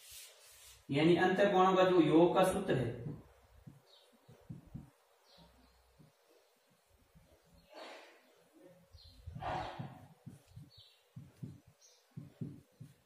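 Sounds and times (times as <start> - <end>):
marker squeaking on whiteboard: 9.0 - 13.0.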